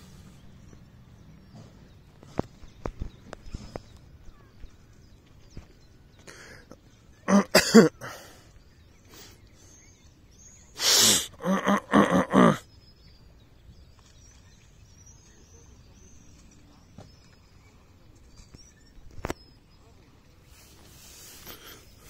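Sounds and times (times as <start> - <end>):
faint bird chirps: 0.0 - 22.0
short pitched calls: 10.6 - 12.7
short loud vocal sounds: 10.8 - 12.6.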